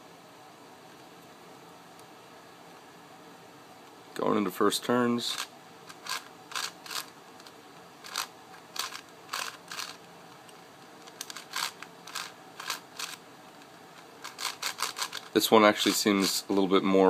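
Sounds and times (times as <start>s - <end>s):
puzzle cube plastic clacking: 5.3s - 16.4s.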